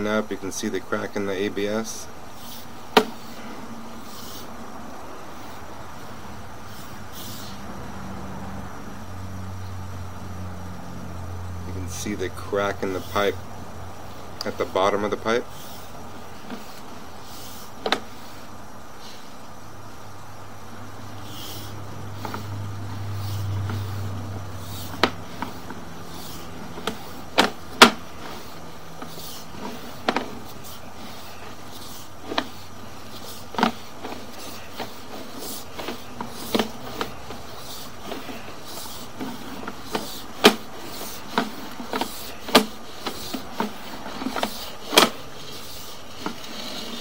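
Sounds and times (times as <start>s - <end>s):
sharp clicks and knocks of cable reel: 21.3s - 47.0s.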